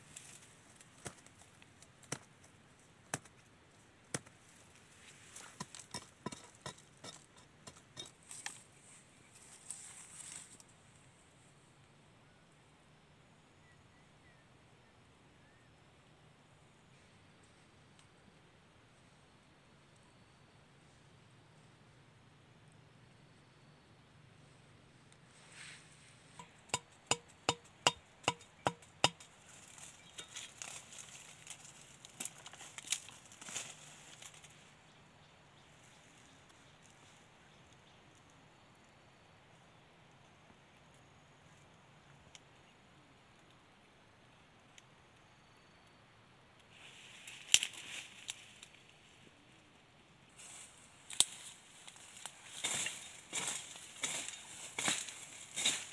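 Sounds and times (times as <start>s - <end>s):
leaves rustling: 0.0s - 1.8s, 8.2s - 10.7s, 29.2s - 34.7s, 46.7s - 49.6s, 50.3s - 55.9s
machete knocking on wooden stake: 26.4s - 29.3s
knife chopping bamboo: 26.7s - 29.2s.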